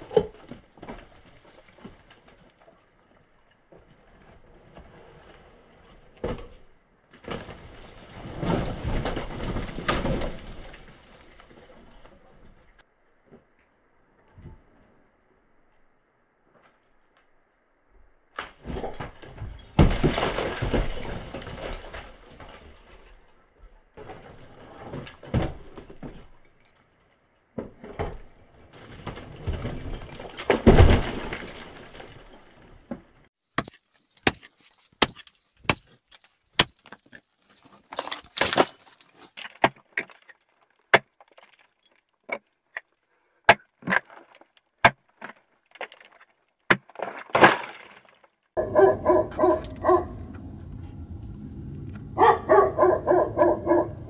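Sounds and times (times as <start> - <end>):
rubble crumbling and sliding: 0.0 - 15.8, 18.2 - 53.8
pick striking rock: 33.5 - 42.9, 43.5 - 49.6.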